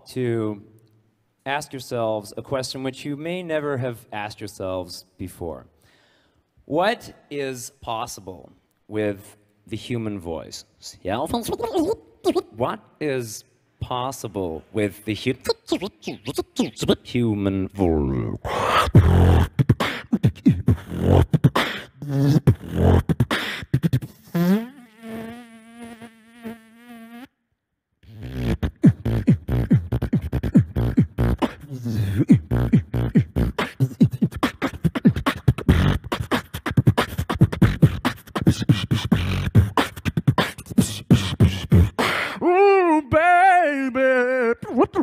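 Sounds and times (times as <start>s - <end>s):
beatboxing into microphone: 10.9s - 12.6s, 15.2s - 27.3s, 28.0s - 45.0s.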